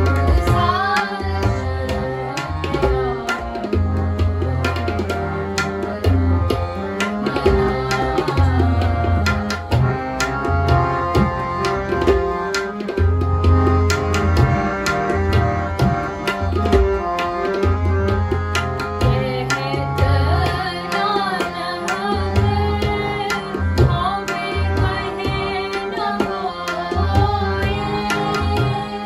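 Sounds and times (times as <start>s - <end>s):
women singing: 0.0s - 10.8s, 19.0s - 29.0s
harmonium chords: 0.0s - 29.0s
tabla rhythm: 0.0s - 29.0s.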